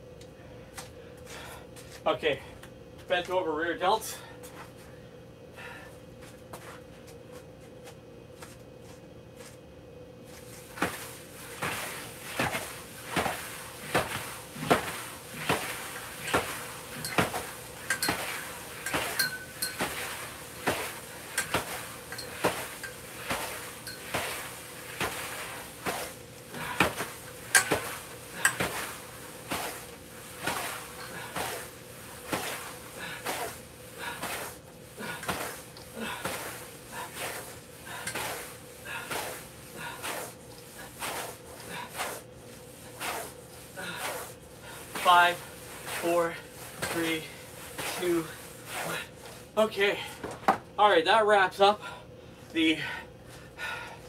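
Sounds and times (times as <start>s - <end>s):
battle ropes slapping the floor: 10.8s - 19.2s, 19.8s - 42.2s, 43.0s - 49.1s.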